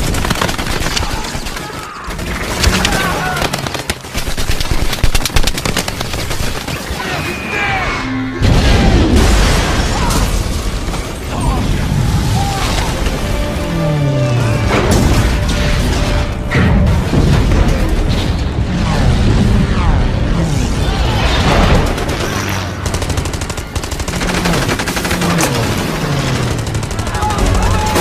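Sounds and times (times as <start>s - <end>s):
rapid gunfire: 0.0s - 7.3s, 21.4s - 28.0s
people shouting: 1.0s - 3.6s, 6.8s - 8.9s, 11.3s - 14.7s, 26.9s - 28.0s
battle soundtrack music: 6.0s - 28.0s
explosions: 8.4s - 13.9s, 14.7s - 22.8s.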